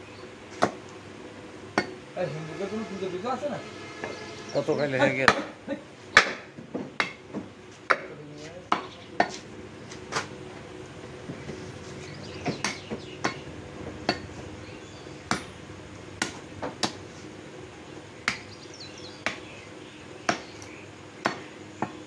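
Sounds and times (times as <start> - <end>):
cleaver chopping meat on wood: 5.3 - 5.6, 6.2 - 8.1, 8.7 - 9.4, 12.4 - 13.4, 16.2 - 17.0, 18.2 - 18.5, 19.2 - 19.5, 20.2 - 22.0.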